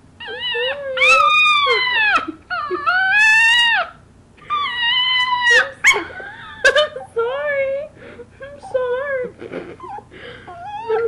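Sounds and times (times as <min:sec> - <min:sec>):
dog whining: 0:00.2 - 0:07.1, 0:09.7 - 0:11.0.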